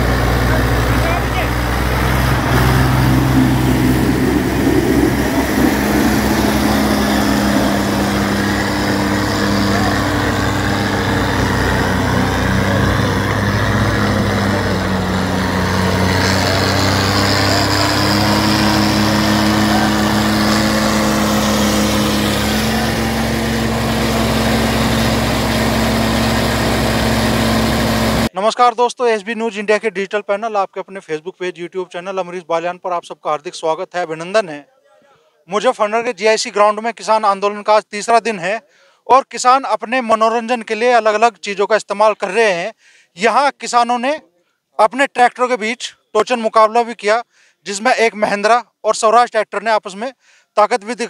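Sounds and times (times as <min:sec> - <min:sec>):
diesel tractor engines straining: 0:00.0 - 0:28.3.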